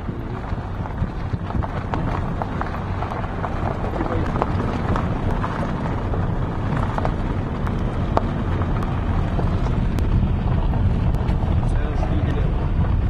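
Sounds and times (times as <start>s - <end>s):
engine and road rumble: 0.0s - 13.0s
light rattles and knocks: 0.0s - 13.0s
wind: 0.0s - 13.0s.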